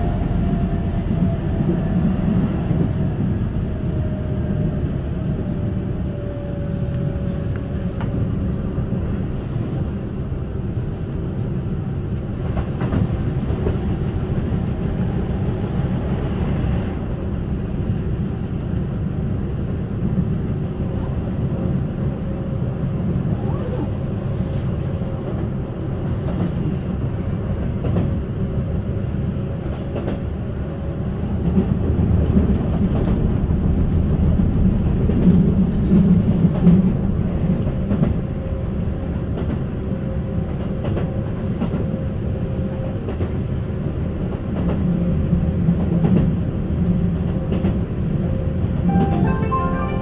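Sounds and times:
train wheels rumbling on rail: 0.0 - 48.9
musical chime: 48.9 - 50.0.

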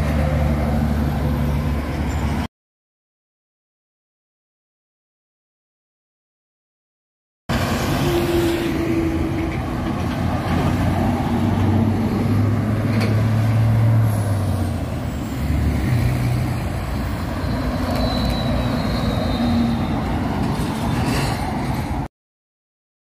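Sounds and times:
heavy trucks passing: 0.0 - 2.5, 7.5 - 22.1.

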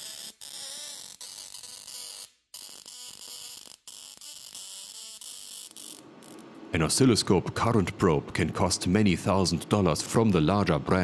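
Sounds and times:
tesla coil hissing and buzzing: 0.0 - 6.6.

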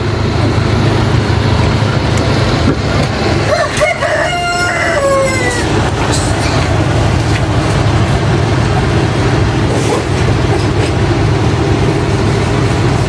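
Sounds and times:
spin dryer motor hum: 0.0 - 13.0
rooster crowing: 3.4 - 6.0.

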